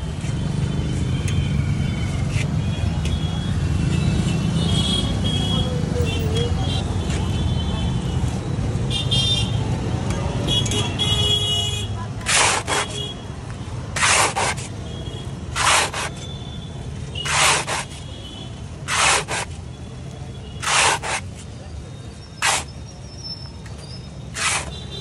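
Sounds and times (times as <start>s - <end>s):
metal spatula scraping through sand: 12.2s - 13.0s, 13.9s - 14.7s, 15.6s - 16.2s, 17.2s - 18.0s, 18.9s - 19.6s, 20.6s - 21.3s, 22.4s - 22.8s, 24.3s - 24.8s.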